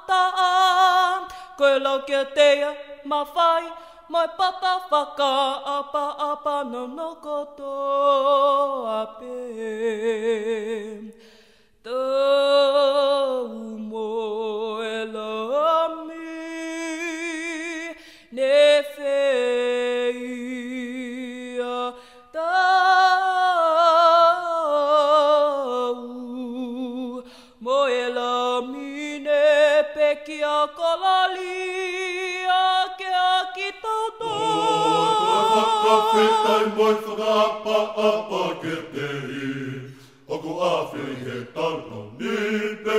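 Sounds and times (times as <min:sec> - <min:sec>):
deeper voices singing: 0:34.2 - 0:42.9
group singing unaccompanied: 0:34.2 - 0:42.9.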